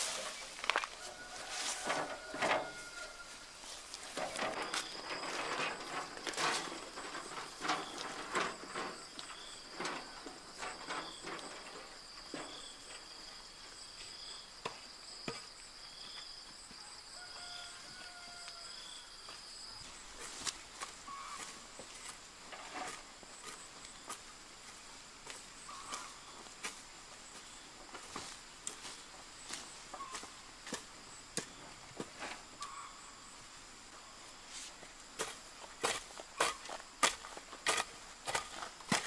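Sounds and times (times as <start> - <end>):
brush rustling and knocking: 0.0 - 12.7, 19.9 - 26.8
wheelbarrow being handled: 0.0 - 16.2, 19.8 - 32.9, 34.4 - 39.0.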